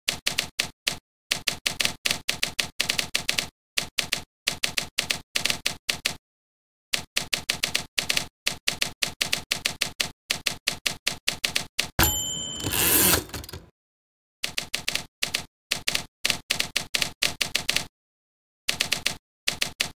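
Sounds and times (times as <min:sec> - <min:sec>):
typewriter keystrokes: 0:07.0 - 0:13.7, 0:18.7 - 0:19.9.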